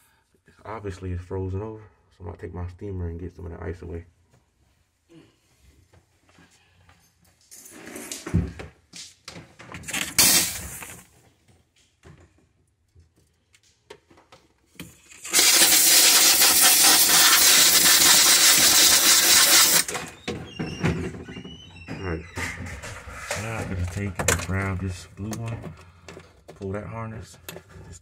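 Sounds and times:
knocks and rustles of handling: 5.6s - 15.1s
steamer hissing steam: 15.2s - 19.9s.

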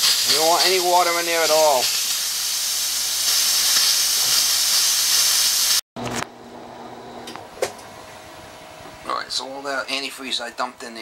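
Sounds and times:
compressed air hissing from faucet: 0.0s - 5.8s.

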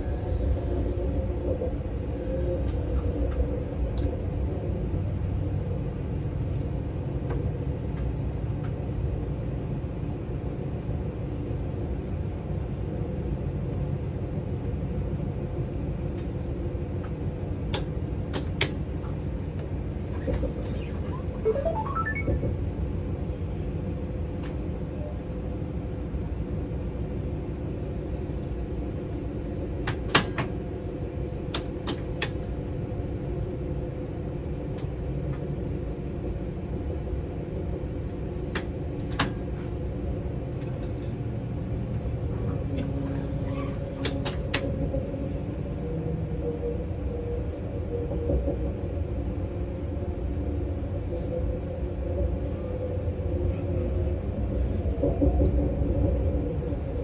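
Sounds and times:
train rumble and hum: 0.0s - 57.0s
rising short tones: 21.1s - 22.6s.

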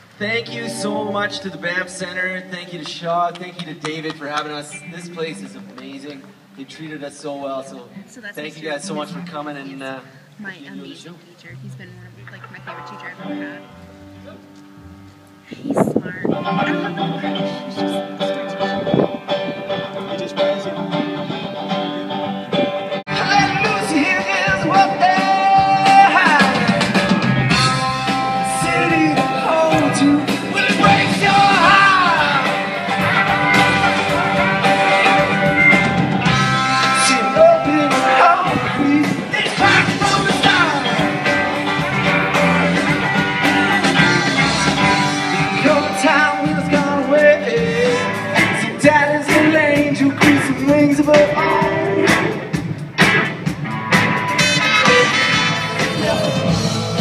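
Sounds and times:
live band through speakers: 0.0s - 57.0s
lead vocalist singing: 0.2s - 5.8s, 15.5s - 19.1s, 23.1s - 52.5s, 55.7s - 57.0s.

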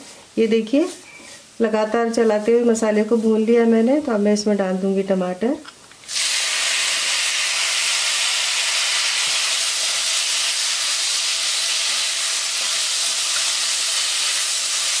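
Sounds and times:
tomatoes sizzling in hot oil: 6.0s - 15.0s.

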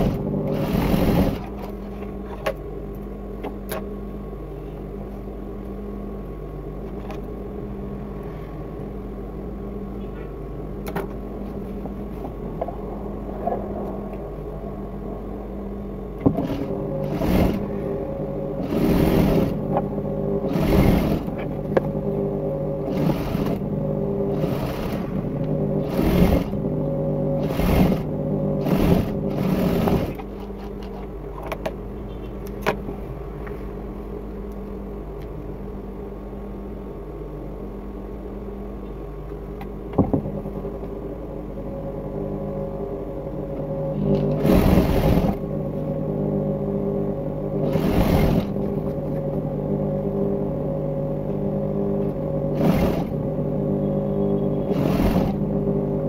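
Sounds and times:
sewing machine motor humming: 0.0s - 1.8s, 16.2s - 31.0s, 43.9s - 45.5s, 47.5s - 49.1s, 51.8s - 56.0s
sewing machine stitching: 0.0s - 1.8s, 16.3s - 17.8s, 18.6s - 19.7s, 20.4s - 21.5s, 22.8s - 23.7s, 24.3s - 26.6s, 27.4s - 31.0s, 44.0s - 45.4s, 47.6s - 48.8s, 52.5s - 53.2s, 54.6s - 55.4s.

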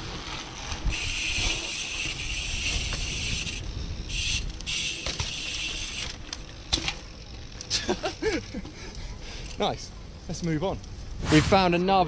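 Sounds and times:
bike hub ratchet buzzing: 0.6s - 8.6s.

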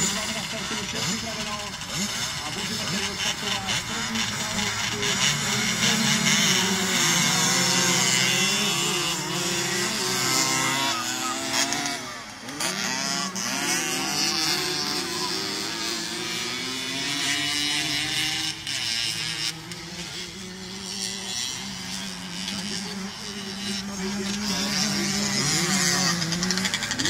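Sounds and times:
motocross bike engines revving: 0.0s - 27.0s.

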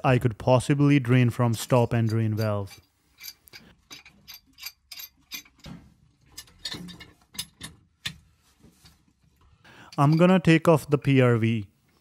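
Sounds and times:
wrench clicking and clinking on metal: 1.9s - 8.2s, 9.9s - 10.4s.

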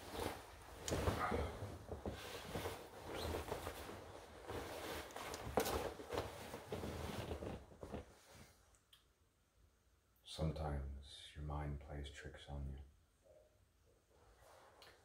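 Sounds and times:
fabric rustling: 0.0s - 8.6s.

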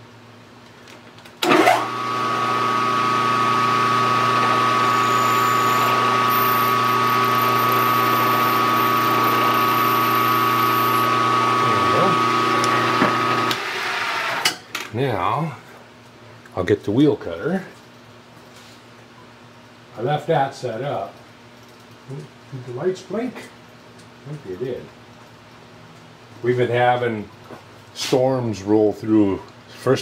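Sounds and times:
milling machine whining: 1.4s - 14.5s.

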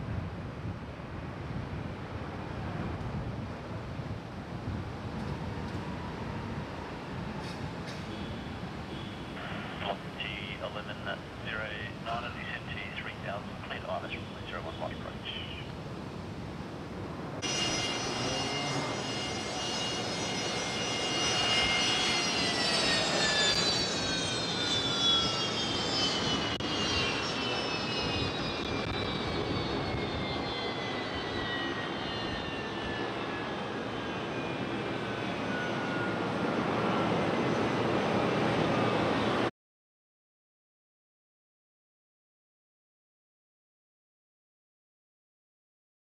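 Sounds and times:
jet rumble: 9.4s - 17.4s.

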